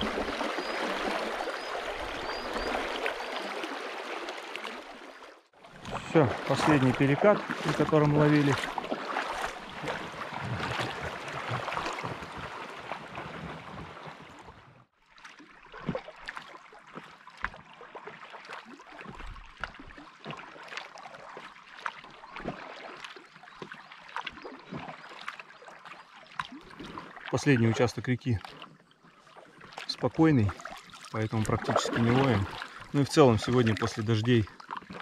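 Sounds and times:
calm water: 0.0 - 35.0
paddle splashes and drips: 0.0 - 35.0
river water rushing: 5.8 - 14.4.

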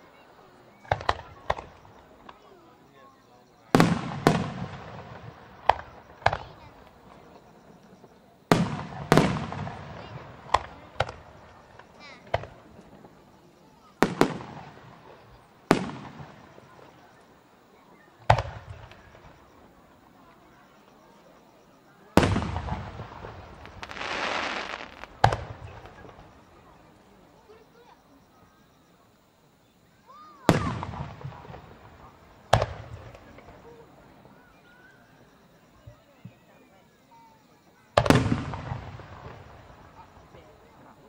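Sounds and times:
firework shells bursting: 22.2 - 26.4.

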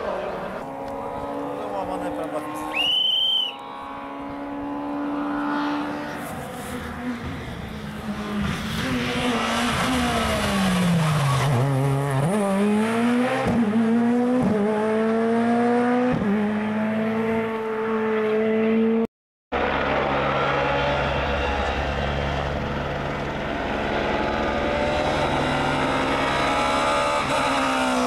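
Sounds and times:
rally car engine accelerating: 0.0 - 28.0.

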